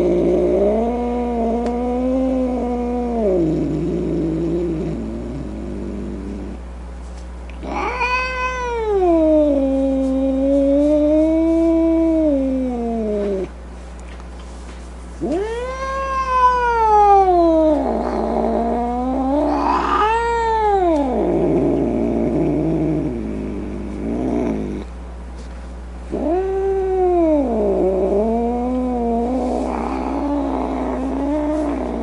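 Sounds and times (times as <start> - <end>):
cat yowling: 7.6 - 10.9, 15.2 - 21.4, 26.1 - 32.0.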